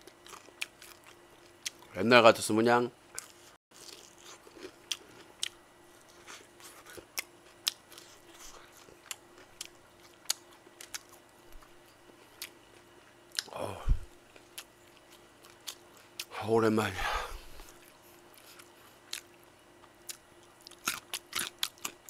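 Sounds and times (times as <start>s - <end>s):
crunching fried chicken: 0.0s - 1.9s, 3.2s - 12.6s, 17.6s - 22.0s.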